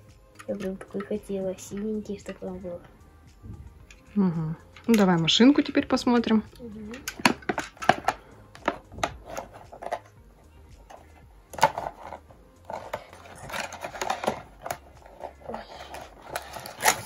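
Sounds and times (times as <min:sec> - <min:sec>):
cardboard and plastic rustling: 0:10.9 - 0:17.0.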